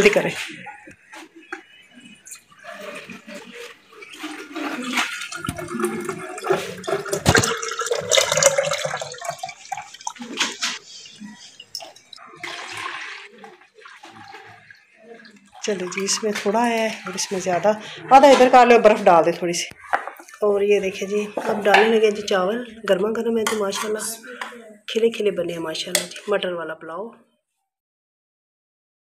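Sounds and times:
liquid pouring into a jug: 0:02.3 - 0:17.9.

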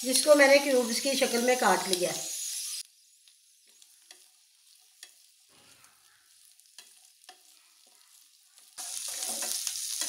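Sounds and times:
vegetables sizzling in oil: 0:00.0 - 0:10.0
spatula clicks stirring: 0:04.0 - 0:05.2, 0:06.6 - 0:07.5.

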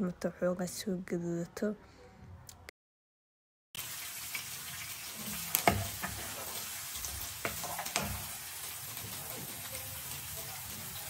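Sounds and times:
onions sizzling in oil: 0:03.8 - 0:11.0
spoon scraping a pan: 0:05.1 - 0:11.0.

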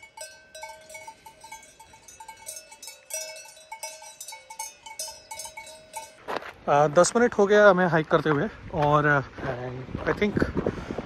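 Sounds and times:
cowbells clanking: 0:00.0 - 0:07.2.

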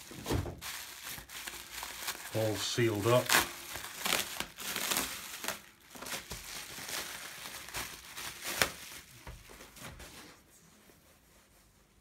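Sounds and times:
bubble wrap crinkling: 0:00.0 - 0:12.0
sharp crackle: 0:00.6 - 0:09.1.

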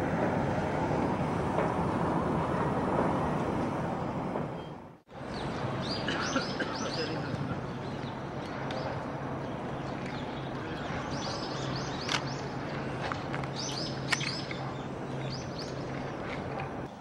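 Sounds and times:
city background noise: 0:00.0 - 0:17.0
birds chirping: 0:04.6 - 0:17.0.

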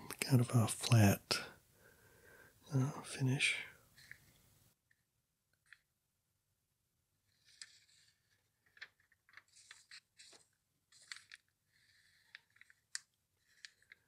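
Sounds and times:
pages rustling: 0:07.2 - 0:14.0.

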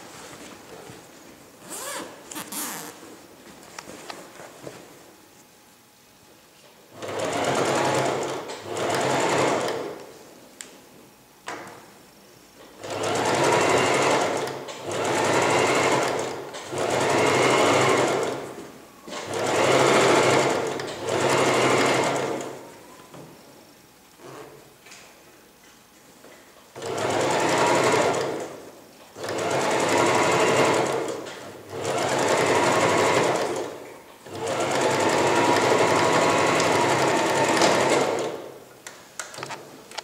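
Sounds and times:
electric sewing machine stitching: 0:07.0 - 0:09.9, 0:12.8 - 0:18.4, 0:19.2 - 0:22.6, 0:26.8 - 0:28.5, 0:29.2 - 0:38.5.

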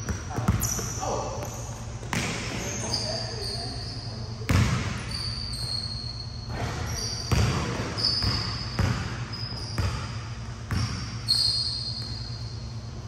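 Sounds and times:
basketball bouncing on court: 0:00.0 - 0:02.9, 0:04.5 - 0:05.2, 0:06.5 - 0:12.3
shoe squeaks: 0:00.2 - 0:12.9.

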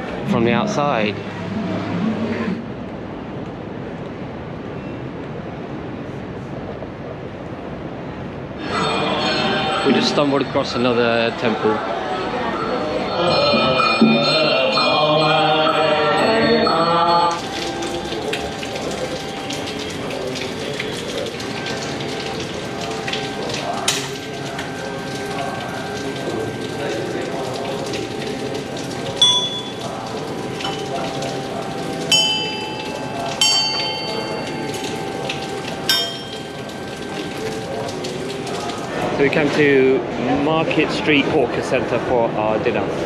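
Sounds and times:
small brass bells ringing: 0:29.2 - 0:30.0, 0:30.6 - 0:37.9.

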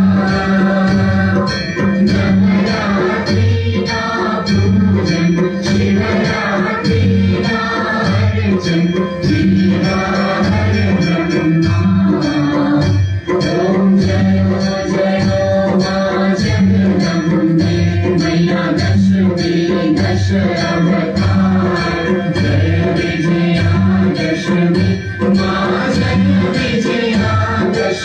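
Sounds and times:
jingling percussion: 0:00.0 - 0:28.0
steady drum beat: 0:00.0 - 0:28.0
voices singing a hymn: 0:00.0 - 0:28.0.

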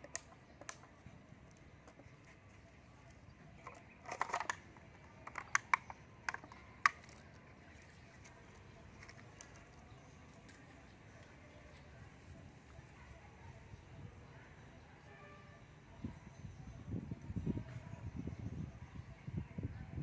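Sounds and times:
sharp clicks and light taps: 0:00.0 - 0:02.0, 0:03.0 - 0:11.3.

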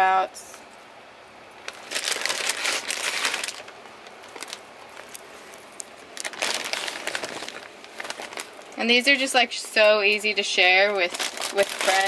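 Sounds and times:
crinkling and crunching food: 0:01.5 - 0:12.0.

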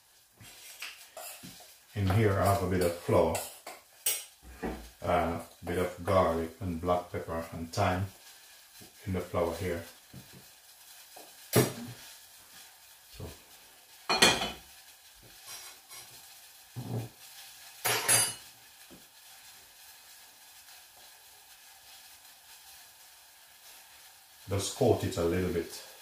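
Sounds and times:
oil sizzling in pan: 0:00.0 - 0:26.0
frying pan moved across hob: 0:04.5 - 0:05.0, 0:16.8 - 0:17.2
cookware clattering: 0:14.1 - 0:14.6.

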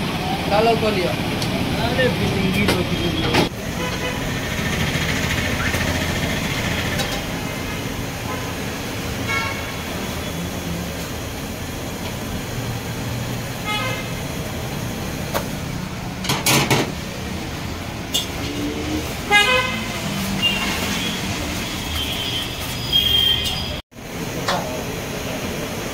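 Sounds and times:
traffic rumble: 0:00.0 - 0:25.9
vehicle horn toots: 0:09.2 - 0:09.8, 0:19.3 - 0:23.8.

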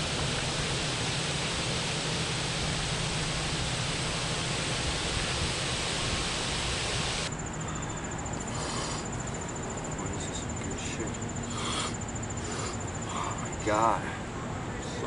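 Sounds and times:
rush of hiss: 0:00.0 - 0:07.3
insect trilling: 0:00.0 - 0:14.0.

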